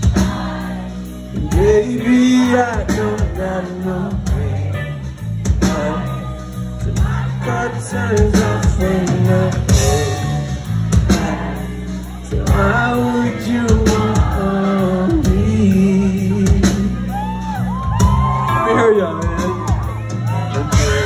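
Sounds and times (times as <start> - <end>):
live rock band playing: 0.0 - 21.0
man singing into microphone: 1.4 - 4.6, 7.4 - 17.1.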